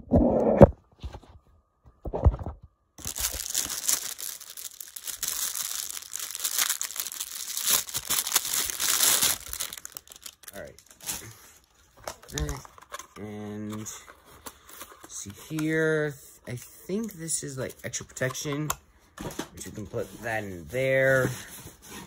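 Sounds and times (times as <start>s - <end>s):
plastic bag crinkling: 3.0s - 12.9s.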